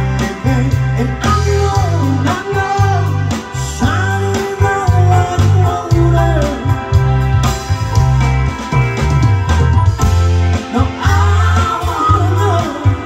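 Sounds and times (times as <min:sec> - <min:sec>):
person singing: 0:00.0 - 0:07.0, 0:10.5 - 0:13.0
drum kit: 0:00.0 - 0:13.0
electric guitars: 0:00.0 - 0:13.0
pulsing bass line: 0:00.0 - 0:13.0.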